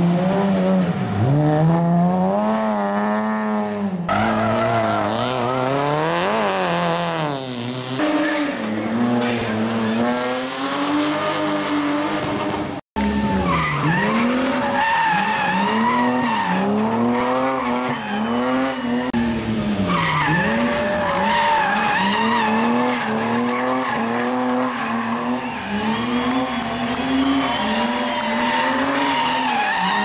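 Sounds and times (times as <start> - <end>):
race car engine revving: 0.0 - 30.0
tyres squealing on tarmac: 13.0 - 16.8, 19.8 - 30.0.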